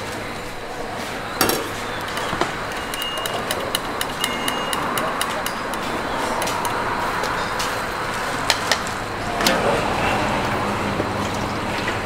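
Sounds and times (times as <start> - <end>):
street traffic noise: 0.0 - 12.0
sharp knocks and clinks: 1.4 - 7.4.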